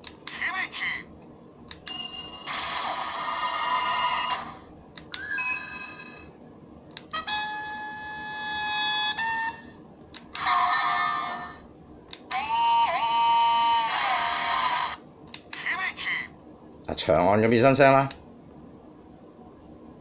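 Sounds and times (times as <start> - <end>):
toy electronic ringing sound effects: 3.3 - 4.6, 5.2 - 6.3.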